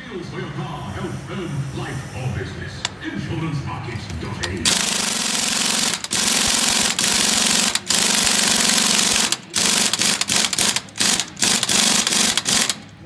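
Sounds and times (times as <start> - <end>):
impact wrench hammering: 4.0 - 13.0.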